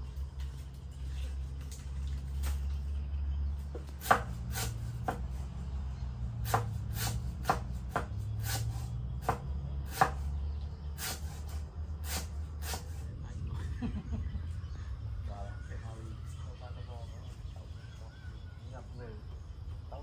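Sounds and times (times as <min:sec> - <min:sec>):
sharp chopping strokes: 0:03.7 - 0:05.4, 0:06.3 - 0:10.4, 0:11.0 - 0:13.0
low steady hum: 0:07.7 - 0:20.0.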